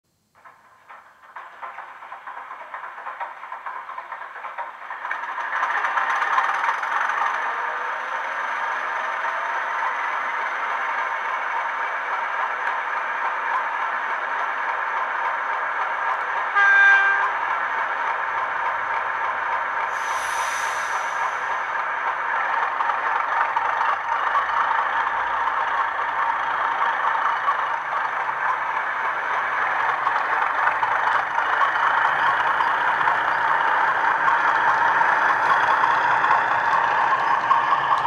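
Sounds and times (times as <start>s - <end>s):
model diesel engine sound: 1.3s - 38.0s
short horn blast: 16.6s - 17.4s.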